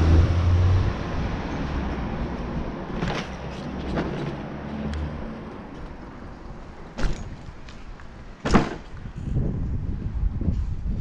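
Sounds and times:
bicycle wheels and wind rumble: 0.0s - 11.0s
sharp clunks: 3.0s - 4.4s, 6.9s - 7.5s, 8.4s - 9.0s.

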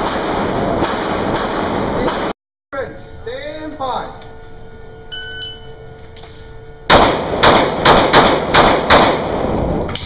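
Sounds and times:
handgun shots echoing indoors: 6.9s - 10.0s.

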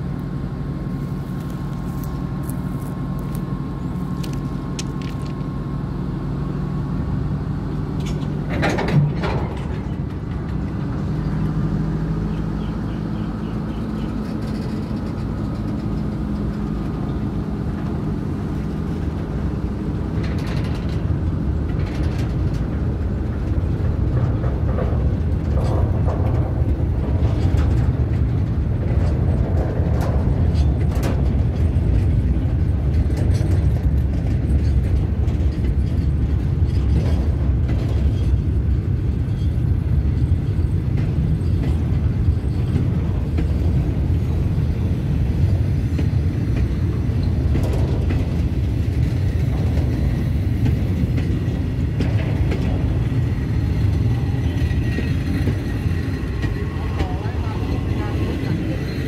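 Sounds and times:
train wheels rumbling on track: 0.0s - 59.0s
sharp clanks and clicks: 4.2s - 5.5s, 8.0s - 11.4s, 20.1s - 43.8s, 45.4s - 58.9s.

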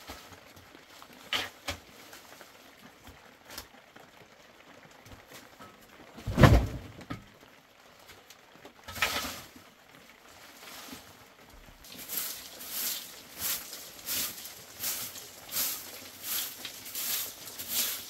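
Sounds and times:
heavy thump: 6.2s - 7.1s.

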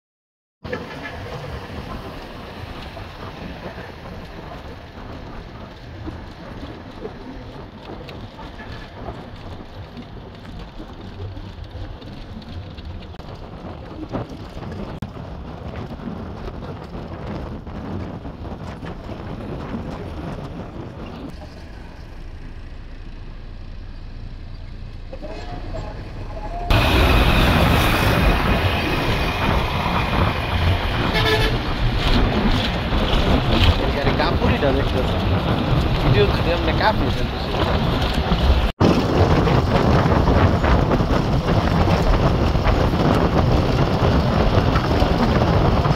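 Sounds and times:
bus engine and road rumble: 0.6s - 45.9s
wind rushing over microphone: 0.7s - 21.4s, 25.5s - 45.9s
brief high-pitched tone: 25.2s - 26.8s.

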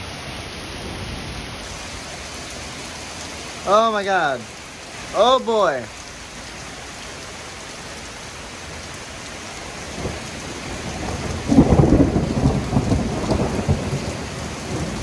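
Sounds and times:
heavy rain hiss: 0.0s - 15.0s
thunder rumbling: 9.8s - 15.0s
loud thunder peal: 11.0s - 15.0s.

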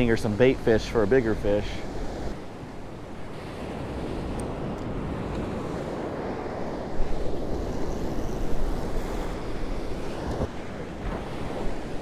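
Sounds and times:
wind buffeting microphone: 0.0s - 12.0s
surf breaking on sand: 3.2s - 12.0s.

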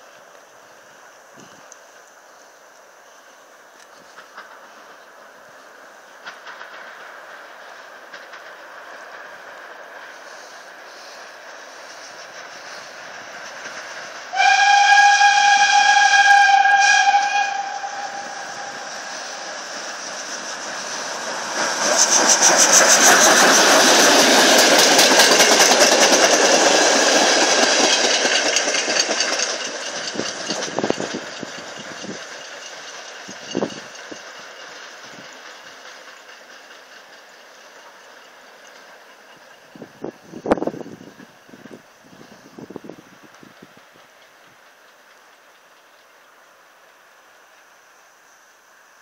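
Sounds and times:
train passing with rush and clatter: 0.0s - 49.0s
steam locomotive whistle: 14.3s - 19.6s.

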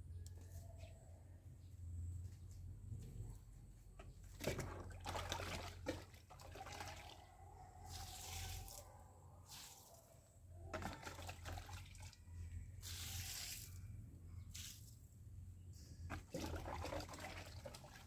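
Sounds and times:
liquid poured in splashes: 4.4s - 7.2s, 10.7s - 12.2s, 16.1s - 18.0s.

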